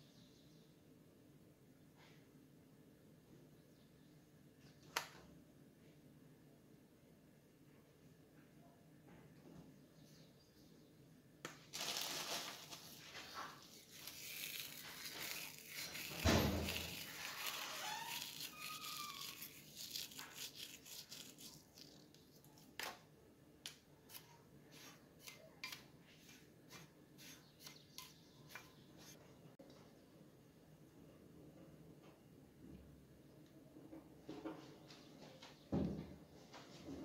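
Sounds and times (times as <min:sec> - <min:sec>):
packet crinkling: 0:11.7 - 0:22.3.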